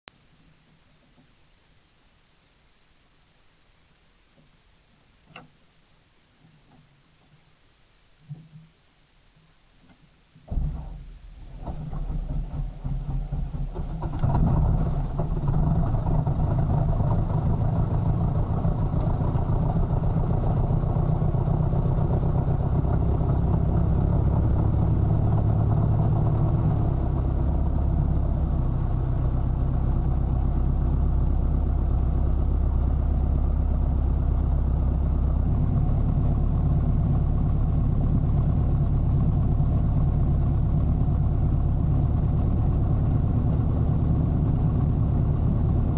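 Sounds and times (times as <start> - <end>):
propeller plane engine: 11.4 - 45.9.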